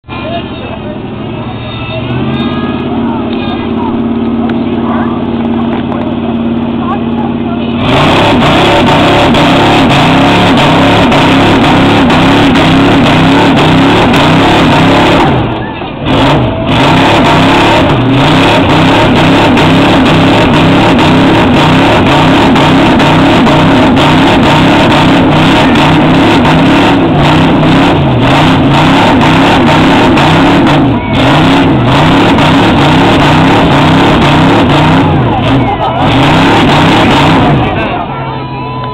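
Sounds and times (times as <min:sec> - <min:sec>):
truck engine at full throttle: 0:00.0 - 0:38.9.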